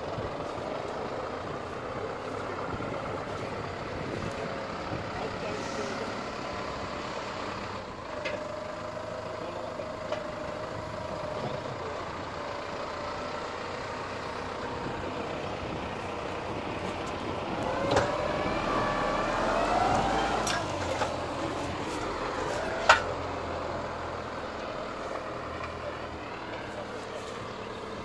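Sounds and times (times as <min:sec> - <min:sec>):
tractor diesel engine running: 0:00.0 - 0:28.0
rising whine: 0:17.5 - 0:23.3.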